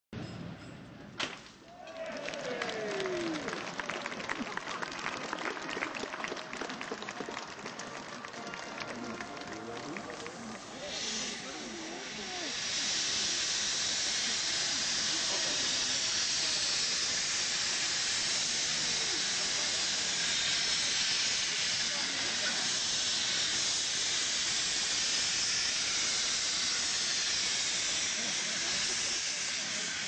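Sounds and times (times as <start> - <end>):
faint crowd voices: 1.9 - 23.6
steam locomotive venting steam: 2.7 - 30.0.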